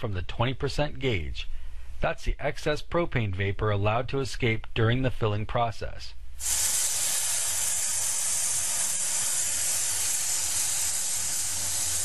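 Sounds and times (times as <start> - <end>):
gas hissing from valve: 6.4 - 12.0.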